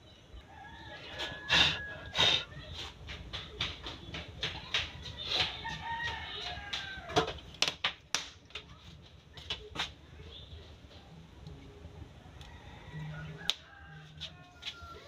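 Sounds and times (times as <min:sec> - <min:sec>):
rooster crowing: 0:00.5 - 0:02.3, 0:12.4 - 0:15.0.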